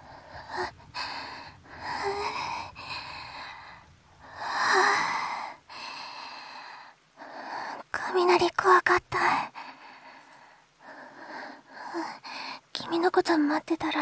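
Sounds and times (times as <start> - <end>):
woman breathing heavily: 0.0 - 7.9, 9.4 - 12.7.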